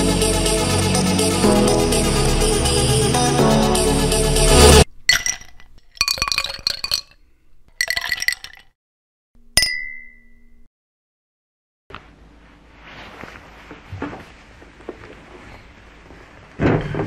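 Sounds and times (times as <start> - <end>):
liquid pouring into a glass: 5.1 - 7.2, 7.8 - 8.7
glass clink: 5.1 - 8.7, 9.4 - 10.7.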